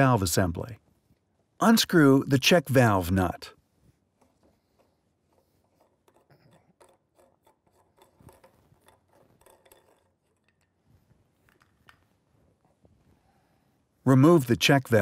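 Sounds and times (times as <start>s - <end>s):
plastic nut rubbing and clicking: 4.0s - 13.0s.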